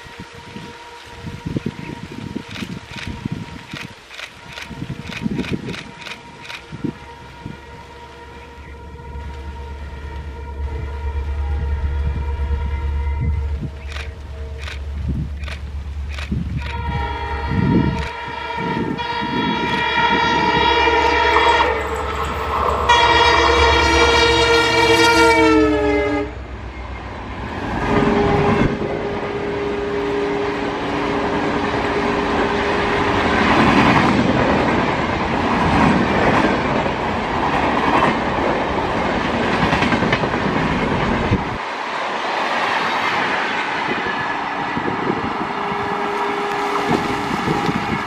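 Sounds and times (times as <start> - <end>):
locomotive horn blaring: 0.0 - 2.5, 5.8 - 15.2, 16.6 - 26.8, 27.8 - 33.8, 44.8 - 48.0
train wheels clattering on rails: 33.0 - 41.6.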